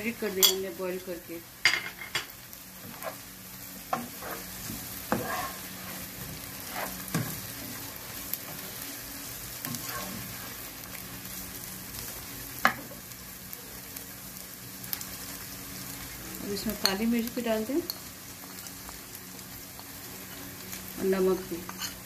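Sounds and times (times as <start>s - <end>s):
food sizzling in oil: 0.0s - 22.0s
spatula scraping pan: 2.8s - 3.3s, 3.9s - 7.8s, 9.6s - 10.6s.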